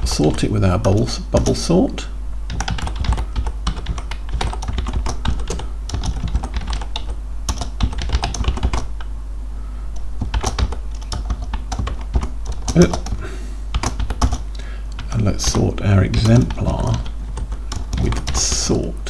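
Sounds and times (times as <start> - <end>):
steady low hum: 0.0 - 19.0
typing on computer keyboard: 2.5 - 9.0, 10.2 - 14.4, 16.2 - 18.6.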